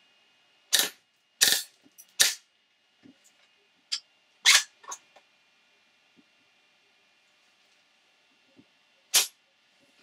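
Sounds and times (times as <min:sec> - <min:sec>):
airsoft gun shots: 0:09.1 - 0:09.4.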